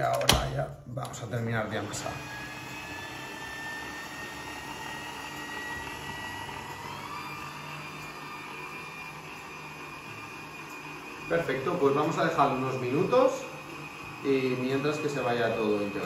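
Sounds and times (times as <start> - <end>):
stand mixer motor whining: 1.2 - 16.0.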